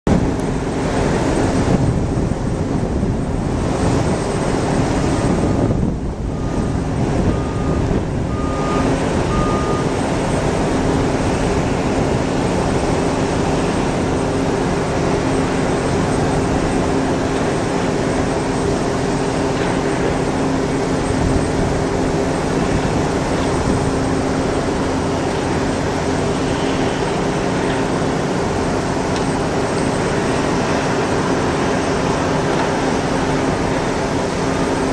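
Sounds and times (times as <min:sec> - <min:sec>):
jet engines rumbling: 0:00.1 - 0:34.9
reversing alarm beeping: 0:05.3 - 0:10.8.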